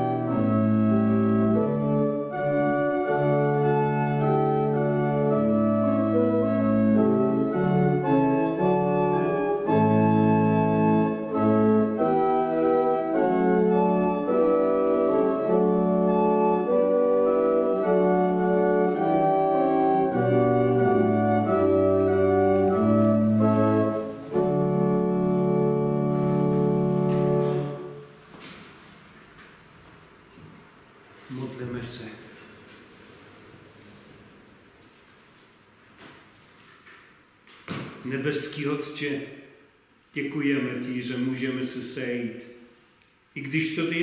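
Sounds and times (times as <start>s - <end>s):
organ playing sustained chords: 0.0s - 28.4s.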